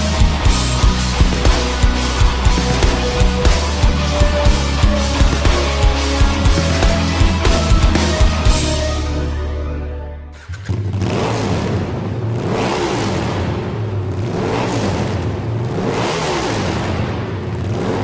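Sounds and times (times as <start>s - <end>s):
low music drone: 0.0s - 12.6s
engine revving: 0.0s - 18.0s.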